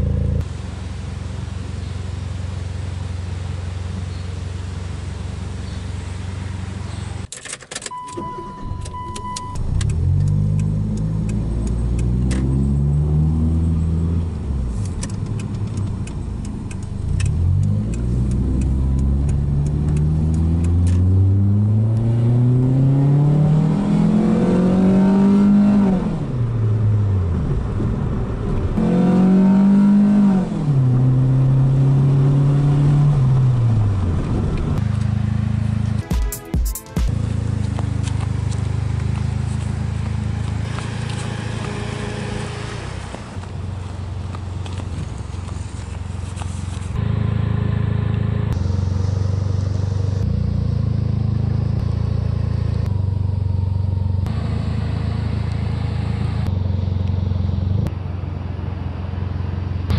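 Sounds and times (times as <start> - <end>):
steady beep: 7.9 - 9.6
car engine revving: 9.5 - 36.1, 37.1 - 59.9.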